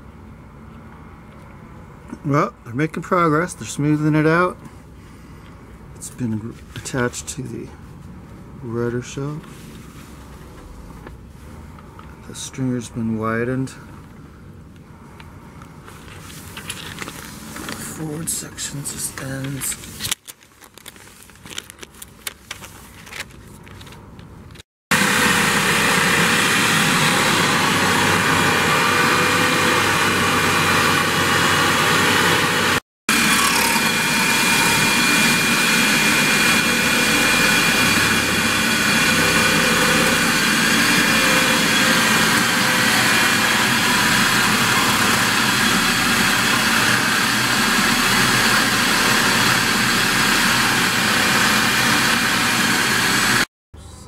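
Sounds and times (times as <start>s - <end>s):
power grinder running: 24.9s - 53.5s.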